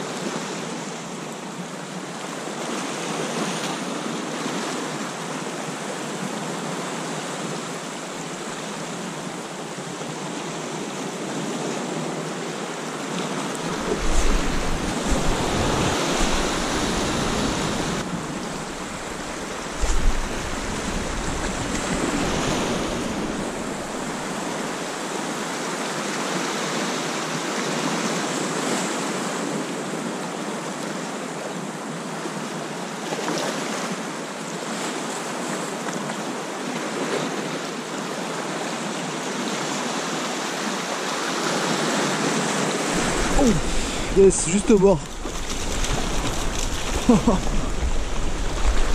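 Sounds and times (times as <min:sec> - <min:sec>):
sea surf breaking over rocks: 0:02.6 - 0:29.8, 0:39.6 - 0:48.9
wind buffeting microphone: 0:13.6 - 0:24.9, 0:42.9 - 0:48.9.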